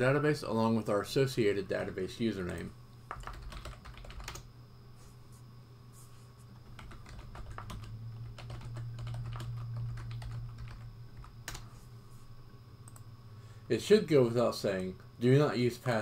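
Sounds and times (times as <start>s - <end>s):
low steady hum: 0.0s - 16.0s
computer keyboard typing: 2.4s - 4.5s, 6.6s - 11.7s.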